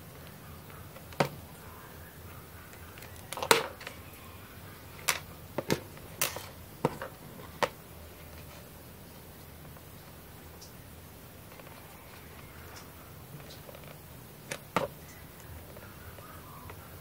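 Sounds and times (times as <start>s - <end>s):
small plastic parts clicking: 2.7s - 4.0s, 5.0s - 8.6s.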